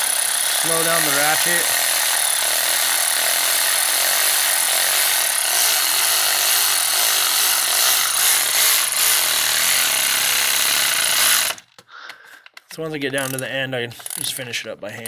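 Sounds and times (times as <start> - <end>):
electric ratchet running: 0.0 - 11.7, 13.2 - 13.4, 14.0 - 14.3.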